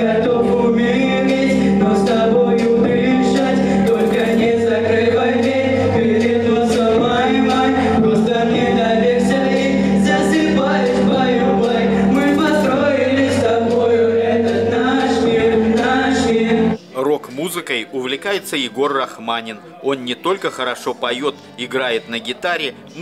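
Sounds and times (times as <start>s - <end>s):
backing music with bass: 0.0s - 16.8s
male vocal group singing: 0.0s - 16.8s.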